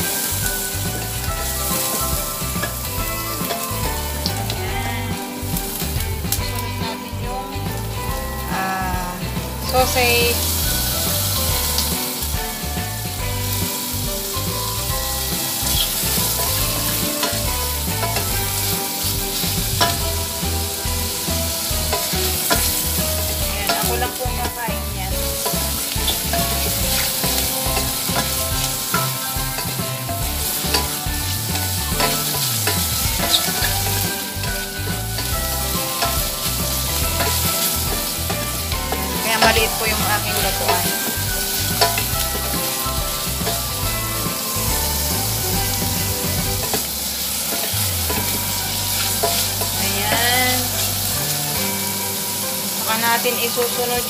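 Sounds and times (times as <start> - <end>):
sausage sizzling in a pot: 0.0 - 54.0.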